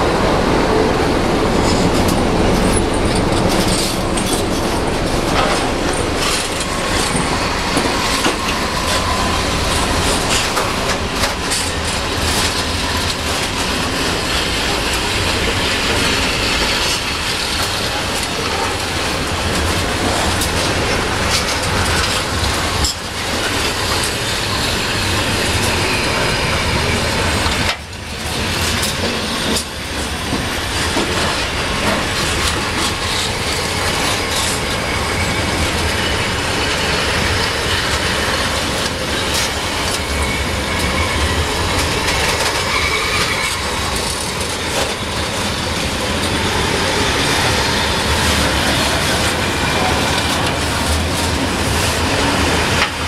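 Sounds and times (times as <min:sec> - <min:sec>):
train wagons rumbling on rails: 0:00.0 - 0:53.0
wheels clicking over rail joints: 0:01.4 - 0:53.0.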